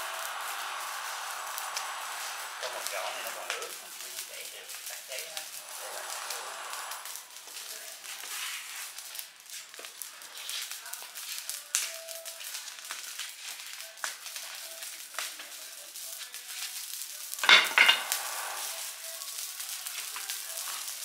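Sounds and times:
loud sudden noise: 0:00.0 - 0:04.0
fire crackling and popping: 0:00.0 - 0:21.0.

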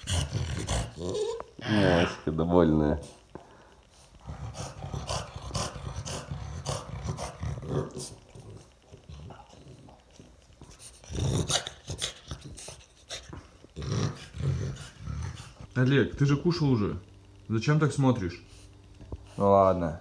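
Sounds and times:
dog grunting: 0:00.0 - 0:02.4, 0:04.2 - 0:15.7.

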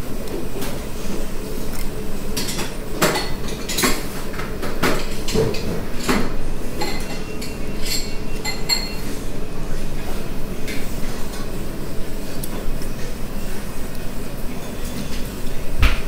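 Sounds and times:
steady background hum: 0:00.0 - 0:16.0
utensils clinking on ceramic bowl: 0:06.8 - 0:09.0.

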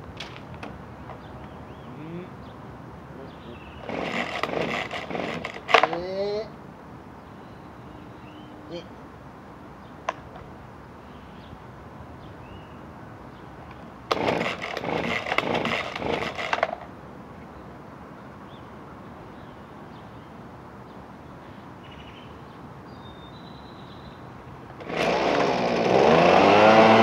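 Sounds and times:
leaf blower engine stuttering: 0:03.8 - 0:06.0, 0:14.1 - 0:16.9, 0:24.8 - 0:27.0.

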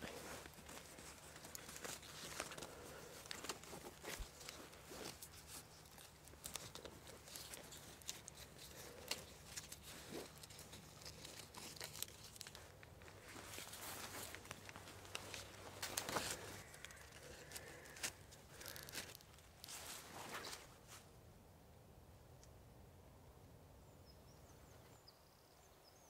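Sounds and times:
bark strips rustling and crackling: 0:00.0 - 0:20.7.

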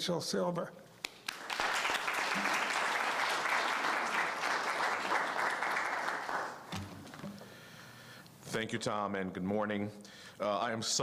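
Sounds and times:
audience applauding: 0:01.1 - 0:07.0.

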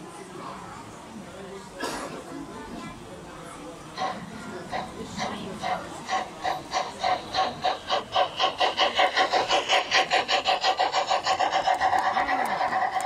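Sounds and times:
model steam train clattering past: 0:01.6 - 0:13.0.

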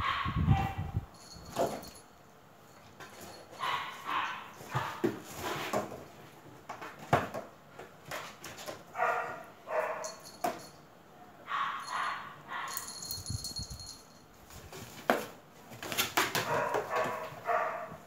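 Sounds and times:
cats tumbling in cardboard box: 0:04.6 - 0:08.9, 0:14.4 - 0:17.4
cardboard knocking on tile floor: 0:06.7 - 0:08.8.

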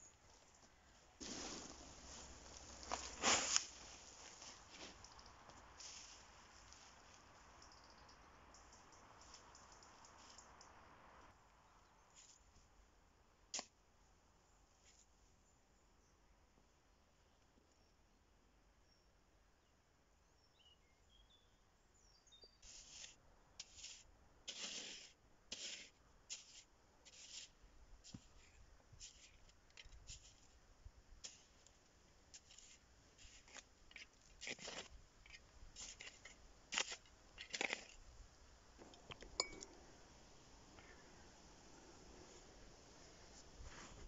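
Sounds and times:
scrapes in sandy soil: 0:00.1 - 0:07.3, 0:12.1 - 0:12.7, 0:22.5 - 0:30.6, 0:31.2 - 0:38.0, 0:42.0 - 0:44.0.

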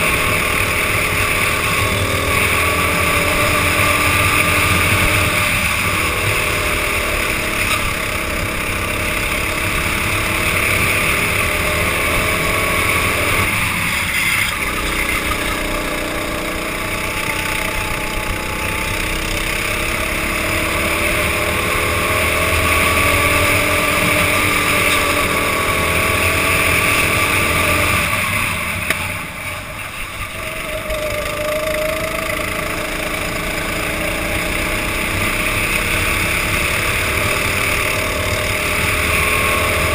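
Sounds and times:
go-kart engine racing: 0:00.0 - 0:39.9.

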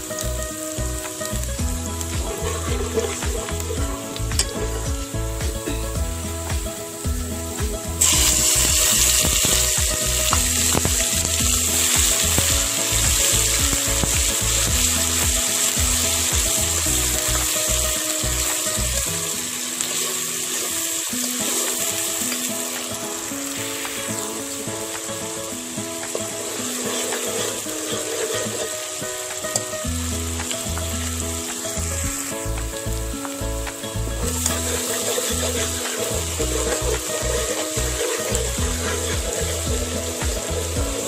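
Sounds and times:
background music with low beat: 0:00.0 - 0:19.0, 0:29.9 - 0:41.0
onion and garlic frying in oil: 0:00.0 - 0:41.0.

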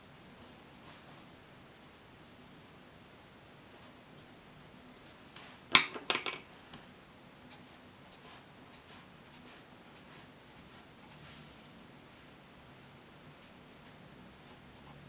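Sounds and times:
pen clacking on wooden desk: 0:05.7 - 0:06.4
pen scratching on paper: 0:07.5 - 0:11.5, 0:13.8 - 0:15.0.

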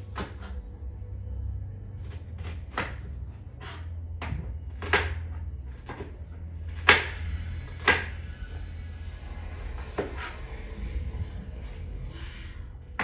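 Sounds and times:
low steady hum: 0:00.0 - 0:13.0
sharp kitchen knocks: 0:04.2 - 0:05.3.

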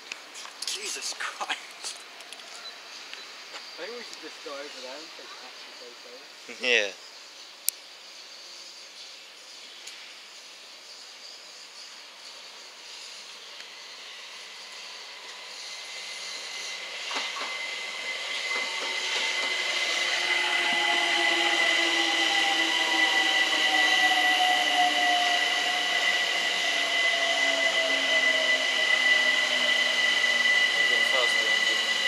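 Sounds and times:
electric train passing: 0:00.0 - 0:32.0
steady high-pitched whine: 0:00.0 - 0:32.0
electric motor whine: 0:13.4 - 0:32.0.

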